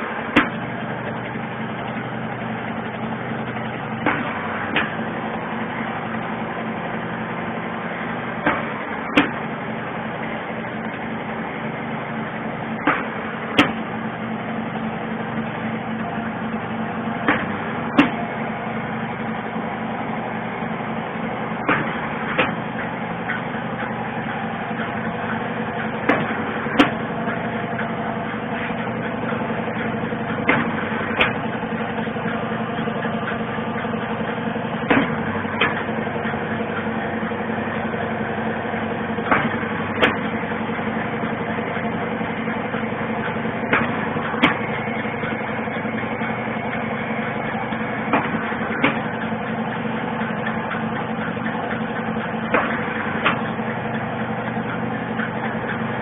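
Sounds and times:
machine humming: 0.0 - 56.0.

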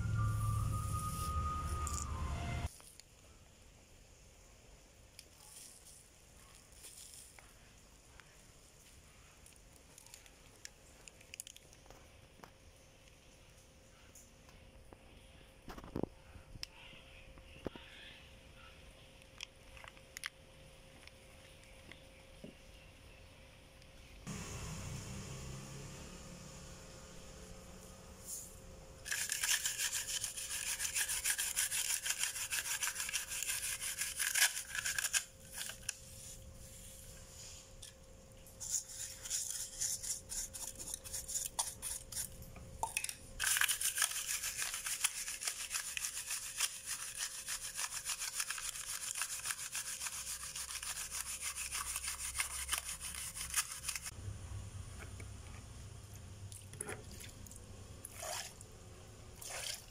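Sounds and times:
brush scrubbing metal: 29.0 - 36.3, 38.6 - 42.4, 43.4 - 54.1
water splashing: 58.1 - 58.6, 59.4 - 59.9.

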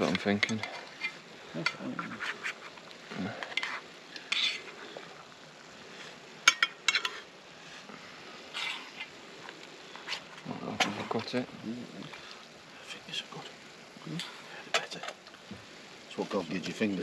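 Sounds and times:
cutlery scraping and clinking plates: 0.4 - 2.7, 6.5 - 7.3.

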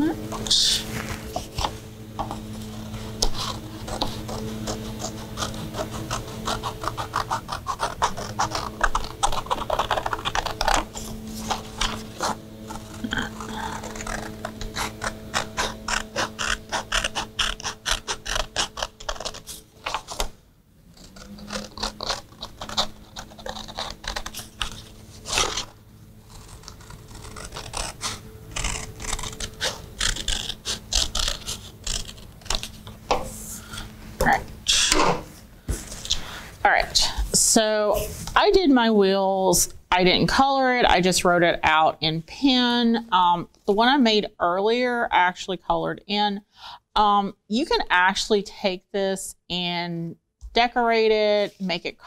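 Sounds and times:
scissors snipping paper: 0.3 - 20.3, 21.0 - 25.7, 26.3 - 33.1
paper rustling: 0.3 - 20.4, 21.1 - 34.2.

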